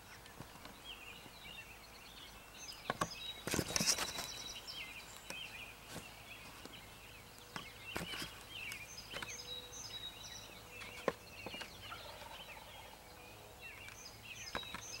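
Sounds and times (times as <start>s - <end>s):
birds chirping: 0.0s - 15.0s
turkey gobbling: 11.9s - 12.9s.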